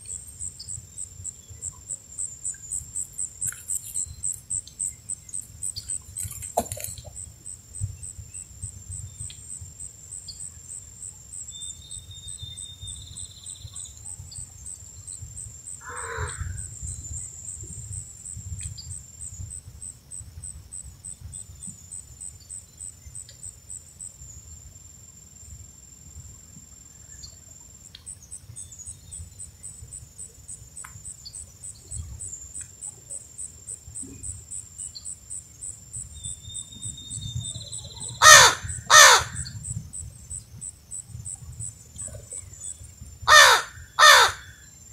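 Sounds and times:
insect chirping: 0.0 - 44.9.

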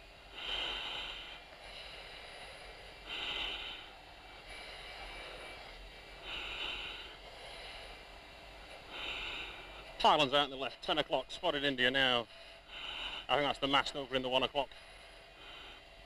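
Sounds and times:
cockpit background noise: 0.0 - 16.0
breathing through oxygen mask: 0.2 - 10.3, 12.0 - 13.5, 14.7 - 16.0.

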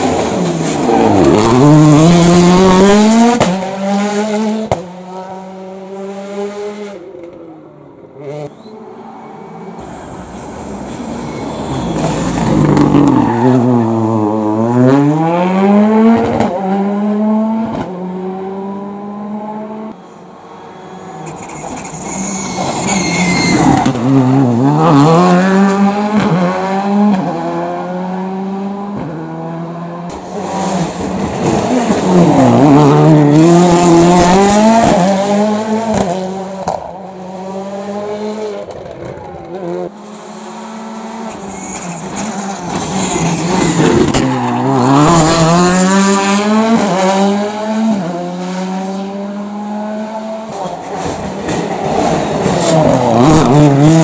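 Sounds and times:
rally car engines accelerating: 0.0 - 20.0, 20.7 - 54.0
tyre squeal: 8.5 - 13.9, 20.6 - 24.2, 41.3 - 44.3.

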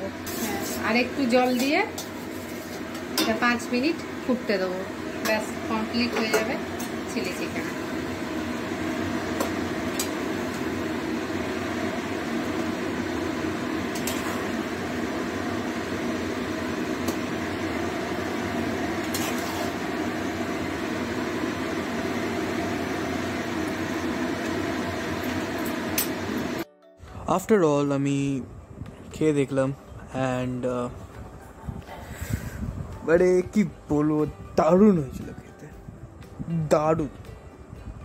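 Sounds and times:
steady mechanical hum: 0.0 - 38.0.

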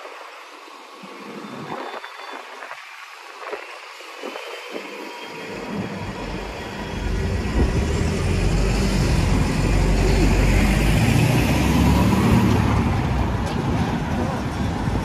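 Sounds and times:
road traffic passing: 5.4 - 15.0
lorry passing: 6.2 - 13.5.

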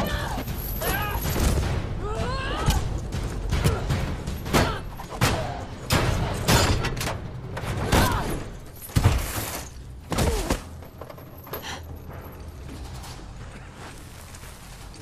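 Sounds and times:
people grunting: 0.0 - 5.8, 7.9 - 8.5.

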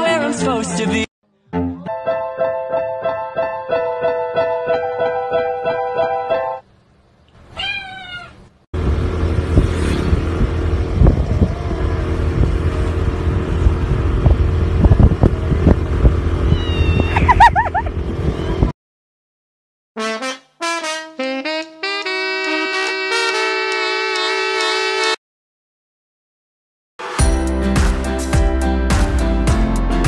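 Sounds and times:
cat meowing: 7.5 - 8.4, 16.5 - 17.4
motor scooter engine hum: 8.8 - 18.7
wind noise: 8.8 - 18.7.

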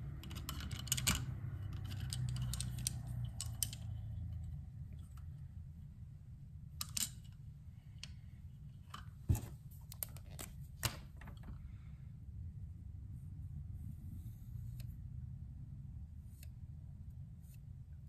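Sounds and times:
metal parts clicking and tapping: 0.0 - 5.3, 6.8 - 8.2
steady low hum: 0.0 - 18.0.

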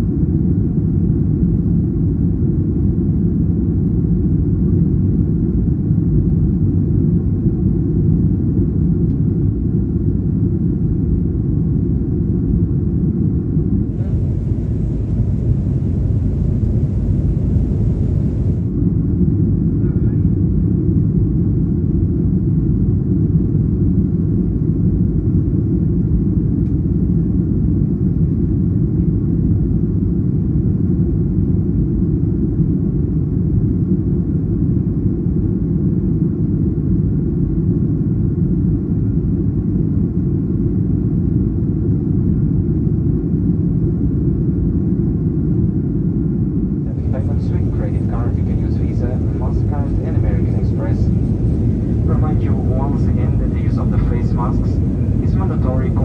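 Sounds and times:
airplane cabin engine rumble: 3.8 - 23.0, 43.8 - 56.0
higher hiss: 13.8 - 18.7.

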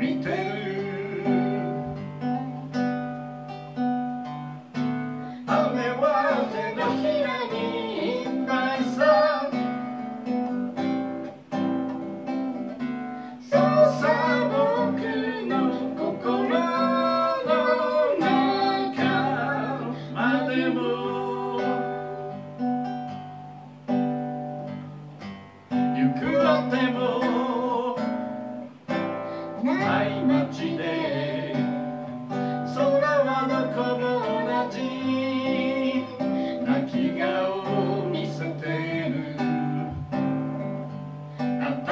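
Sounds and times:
man singing: 0.0 - 2.7, 5.4 - 10.0, 13.4 - 22.2, 25.9 - 28.7, 29.6 - 31.9, 32.6 - 40.2, 41.6 - 41.9
strummed acoustic guitar: 0.0 - 41.9.

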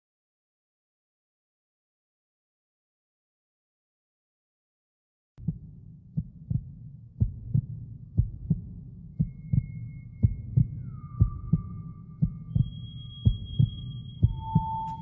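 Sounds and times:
heartbeat double thump: 5.4 - 15.0
low rumble: 5.4 - 15.0
thin high held tones: 11.8 - 15.0.

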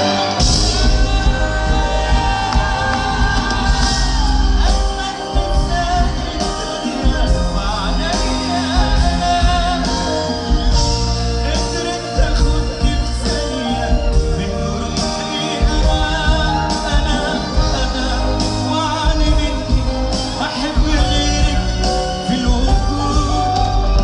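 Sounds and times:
live band with keyboards: 0.0 - 24.0
man singing: 0.0 - 24.0.

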